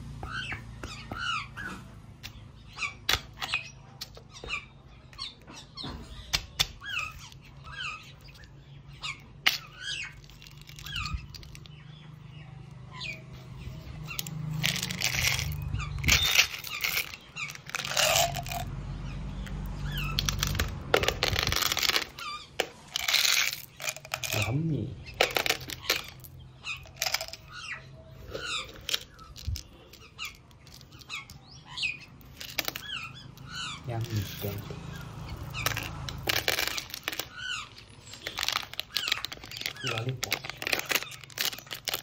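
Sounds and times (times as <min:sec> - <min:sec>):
candy rattling in plastic bottle: 0:14.6 - 0:18.7, 0:20.2 - 0:22.2, 0:22.9 - 0:24.5, 0:25.2 - 0:26.3, 0:26.9 - 0:27.5, 0:32.2 - 0:32.9, 0:35.6 - 0:37.3, 0:38.1 - 0:42.0.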